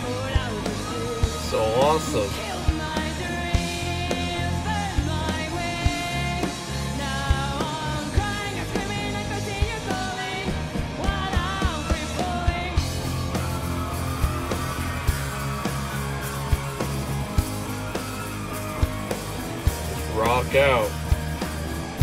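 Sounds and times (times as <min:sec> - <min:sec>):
woman singing: 0:00.0 - 0:01.4, 0:02.3 - 0:13.0
drums: 0:00.0 - 0:22.0
electric guitar: 0:00.0 - 0:22.0.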